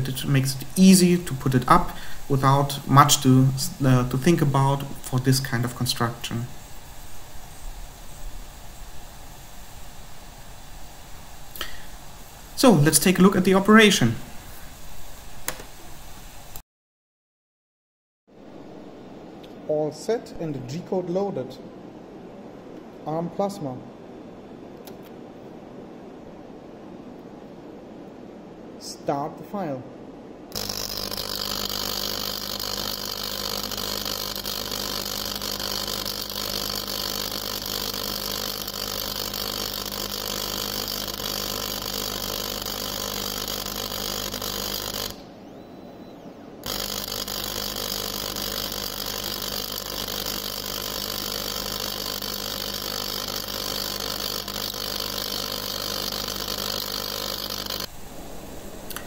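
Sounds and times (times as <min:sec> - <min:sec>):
machine hum with hiss: 0:00.0 - 0:16.6, 0:30.4 - 0:59.0.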